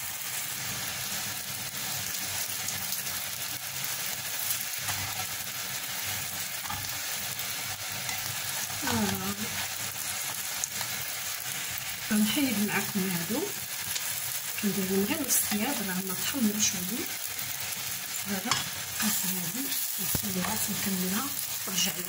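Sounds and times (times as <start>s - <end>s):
oil sizzling in a pan: 0.0s - 22.0s.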